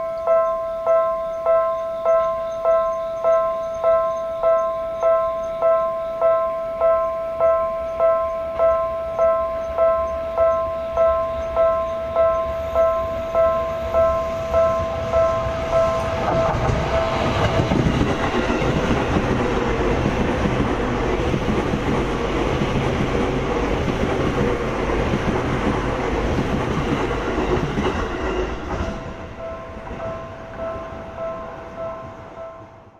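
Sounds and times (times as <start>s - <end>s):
train wheels clattering over rails: 13.1s - 31.2s.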